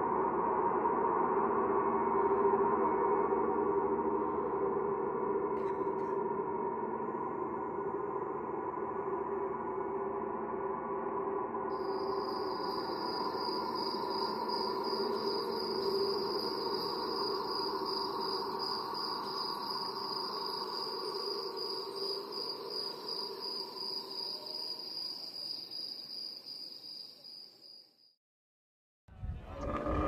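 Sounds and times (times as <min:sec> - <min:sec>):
low ringing drone: 0:00.0 - 0:25.6
cricket chirping: 0:11.7 - 0:28.2.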